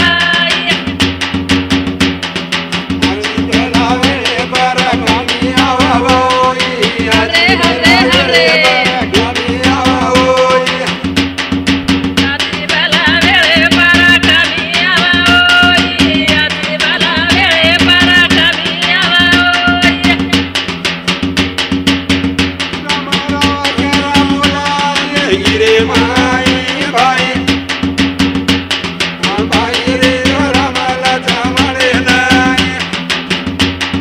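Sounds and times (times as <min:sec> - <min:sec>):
women singing together: 0:00.0 - 0:00.8, 0:03.0 - 0:11.1, 0:12.2 - 0:20.3, 0:24.2 - 0:27.5, 0:29.2 - 0:32.8
fast frame drum beats: 0:00.0 - 0:34.0.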